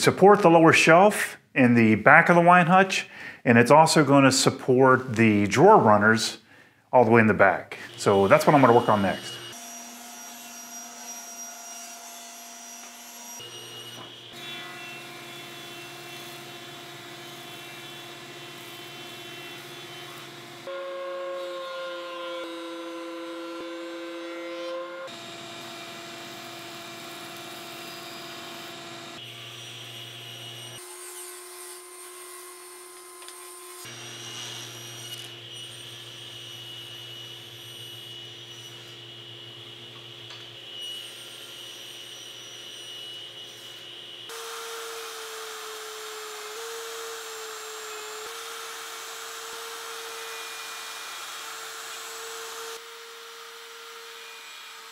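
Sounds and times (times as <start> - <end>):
table saw cutting wood: 7.8 - 54.9
thickness planer running: 22.0 - 29.4.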